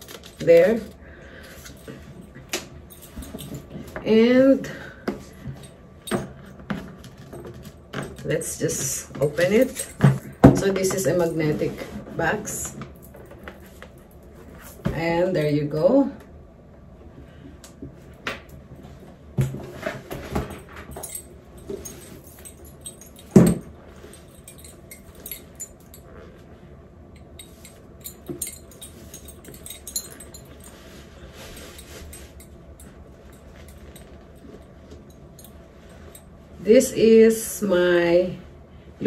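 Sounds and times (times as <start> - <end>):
metal bracelets jangling: 2.9 - 3.9, 8.0 - 11.8, 20.9 - 26.3, 27.2 - 36.3.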